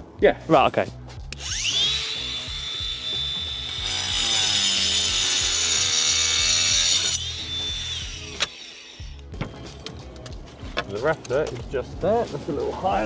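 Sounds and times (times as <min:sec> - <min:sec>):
power tool cutting slate: 0:01.3 - 0:09.3.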